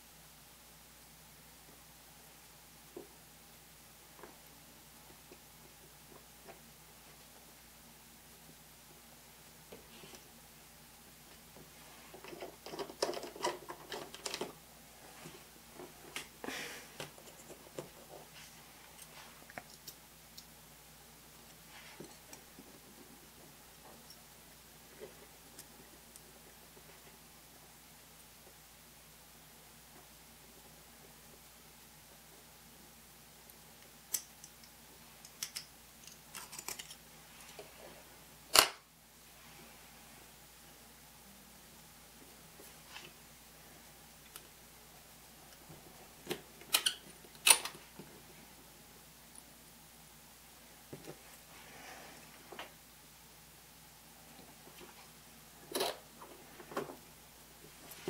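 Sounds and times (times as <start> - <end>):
soft rustle: 11.3 - 12.6, 14.8 - 19.9, 21.4 - 27.3, 50.6 - 52.8.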